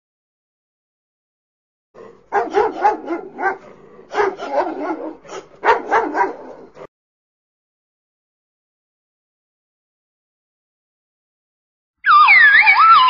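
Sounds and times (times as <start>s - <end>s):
dog yapping: 2.3s - 6.9s.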